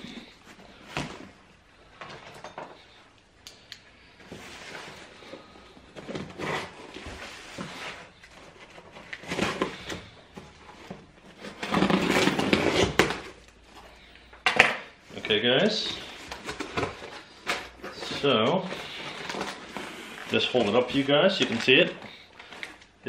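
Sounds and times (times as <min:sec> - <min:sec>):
cardboard box scraping and rustling: 0:10.7 - 0:13.1.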